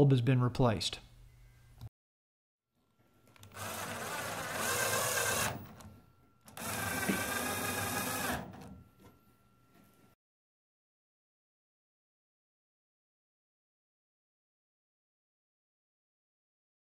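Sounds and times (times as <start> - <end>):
cordless drill motor whine: 3.4 - 5.9, 6.5 - 8.8.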